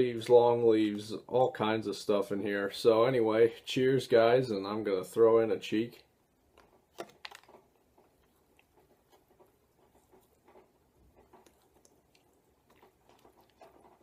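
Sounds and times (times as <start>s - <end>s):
faint clicks and rustles: 5.9s - 14.0s.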